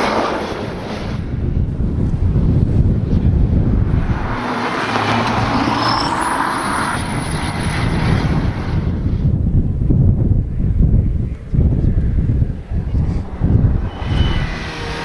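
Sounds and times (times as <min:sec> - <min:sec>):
wind buffeting microphone: 0:00.0 - 0:15.0
rally car engine driving past: 0:03.4 - 0:09.0.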